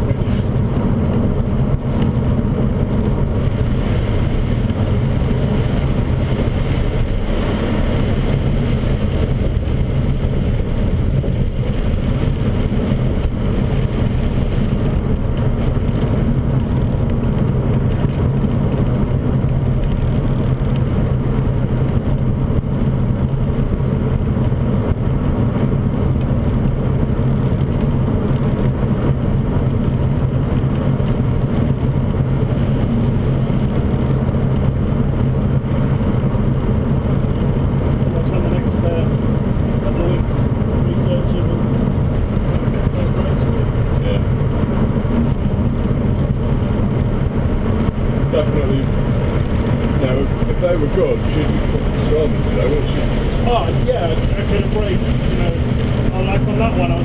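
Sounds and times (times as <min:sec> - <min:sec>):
car engine cruising: 0:00.0 - 0:57.0
tyre noise on wet road: 0:00.0 - 0:57.0.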